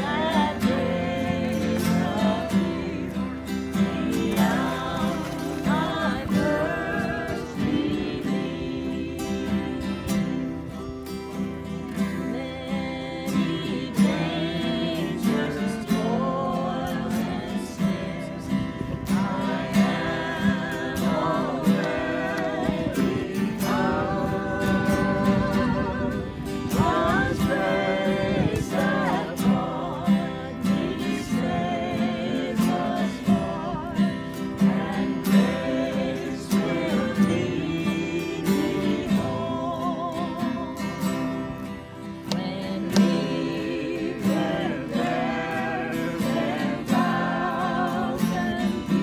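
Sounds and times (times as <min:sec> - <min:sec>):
acoustic guitar strumming: 0:00.0 - 0:49.0
person singing: 0:19.2 - 0:41.2.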